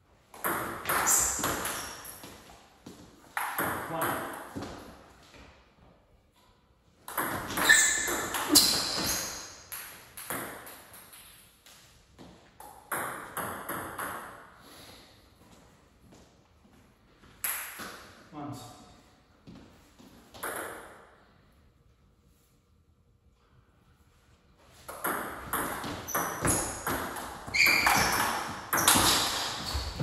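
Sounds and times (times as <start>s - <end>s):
ball bouncing on table: 24.9s - 30.0s.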